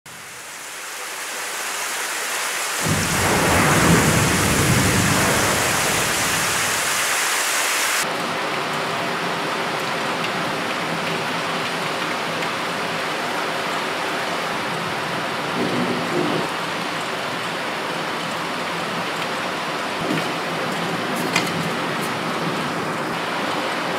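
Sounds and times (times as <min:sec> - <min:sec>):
heavy rain pouring: 0:00.1 - 0:23.9
distant thunder rumbling: 0:02.8 - 0:07.1.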